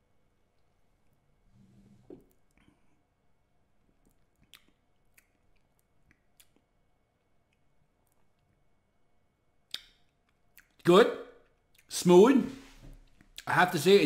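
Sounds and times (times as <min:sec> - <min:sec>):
mouth clicks and lip smacks: 0:04.0 - 0:08.6, 0:09.6 - 0:11.9.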